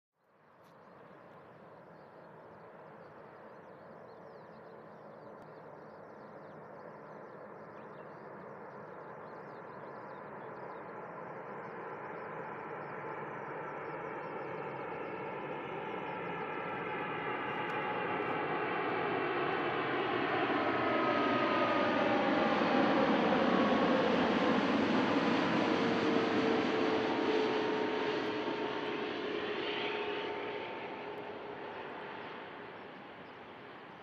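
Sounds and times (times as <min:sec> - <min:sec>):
jet airliner rumble: 0:00.9 - 0:34.0
jet engine whining: 0:10.2 - 0:34.0.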